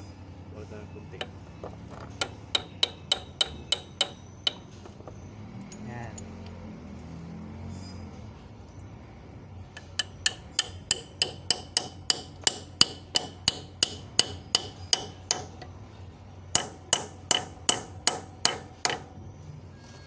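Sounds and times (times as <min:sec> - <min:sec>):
hammer striking metal pin: 0:02.1 - 0:04.7, 0:09.8 - 0:15.7.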